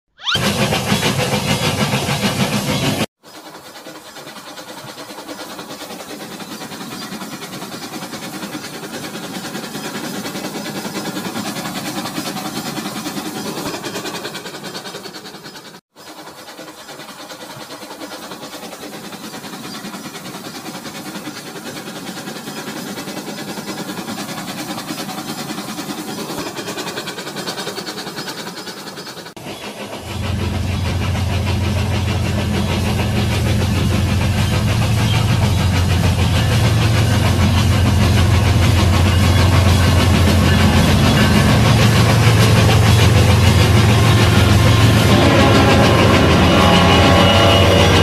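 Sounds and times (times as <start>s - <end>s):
toy train whirring rattle: 0.2s - 2.2s, 3.2s - 29.4s.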